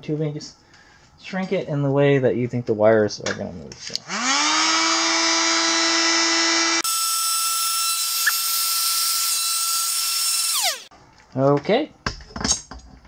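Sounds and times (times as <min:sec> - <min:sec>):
heat gun fan whining: 0:04.0 - 0:10.9.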